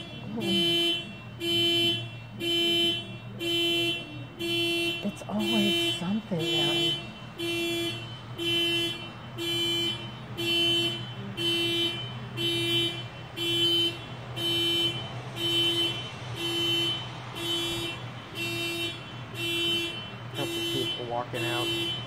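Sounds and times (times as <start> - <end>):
car alarm honking: 0.0 - 22.0.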